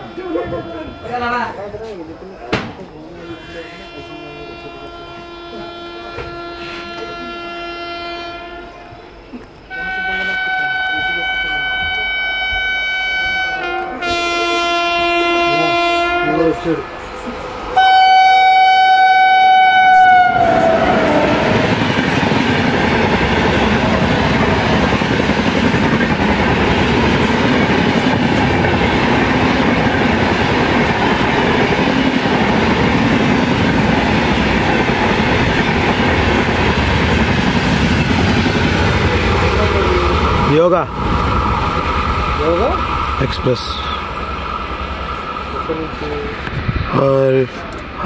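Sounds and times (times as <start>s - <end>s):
train horn blaring: 0.0s - 1.6s, 3.1s - 17.1s, 17.7s - 22.0s
train coaches rumbling and clattering: 0.0s - 18.6s, 19.4s - 48.0s.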